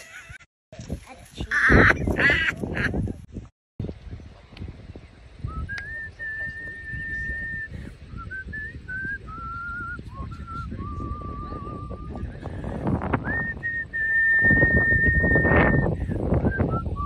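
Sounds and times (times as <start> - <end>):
wind rumble on microphone: 0.0 - 17.0
person whistling a slow tune: 5.5 - 12.5, 13.2 - 17.0.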